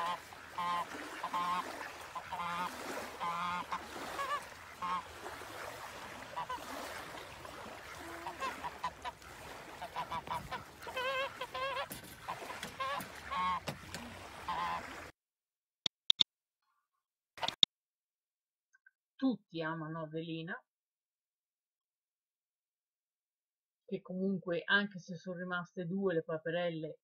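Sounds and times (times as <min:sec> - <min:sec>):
goose honking: 0:00.0 - 0:15.0.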